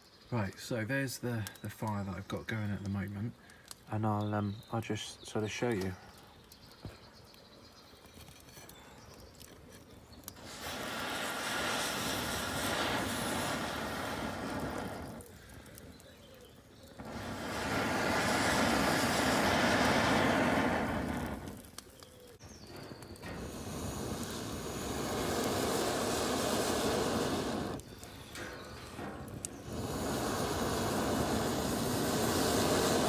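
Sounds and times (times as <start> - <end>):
breath blown through blowpipe: 23.2 - 28.0, 29.5 - 33.0.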